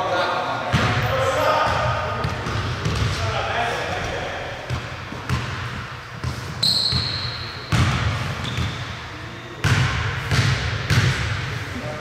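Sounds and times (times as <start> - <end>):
basketball bouncing on gym floor: 0.7 - 3.2, 4.6 - 8.9, 9.6 - 11.5
high-pitched shoe squeak: 6.6 - 7.5.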